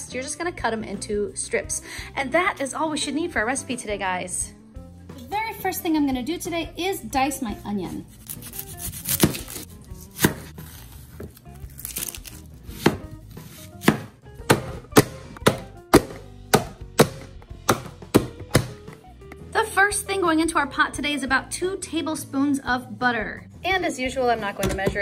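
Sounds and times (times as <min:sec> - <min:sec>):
knife chopping on cutting board: 0:08.4 - 0:19.0.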